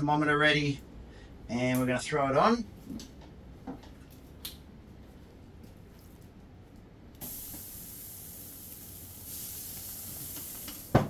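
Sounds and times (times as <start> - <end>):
chicken sizzling on a grill: 7.2 - 11.0.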